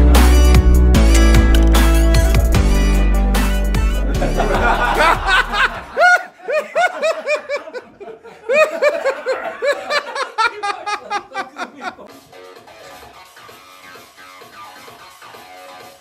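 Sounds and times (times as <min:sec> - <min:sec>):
background music: 0:00.0 - 0:06.1, 0:11.8 - 0:16.0
people laughing: 0:04.0 - 0:12.1.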